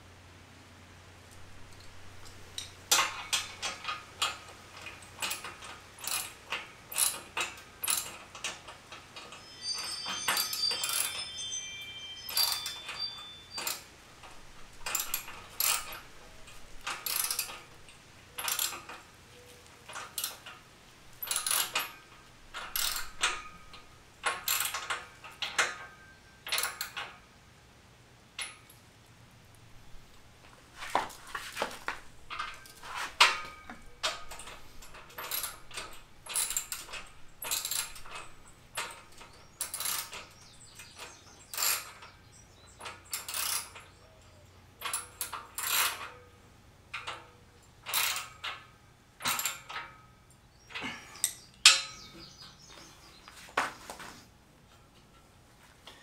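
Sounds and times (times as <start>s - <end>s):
metallic ringing: 9.1s - 20.4s, 32.2s - 42.0s
ratchet wrench clicking: 14.8s - 16.1s, 16.8s - 17.6s, 18.4s - 19.0s, 21.2s - 23.6s, 34.0s - 39.0s.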